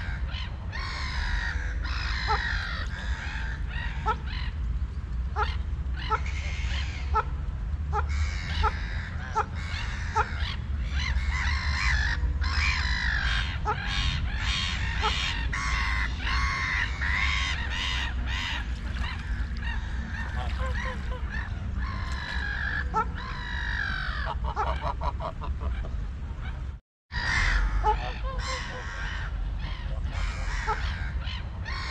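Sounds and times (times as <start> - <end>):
steady low rumble: 0.0 - 31.9
geese honking: 11.4 - 25.9.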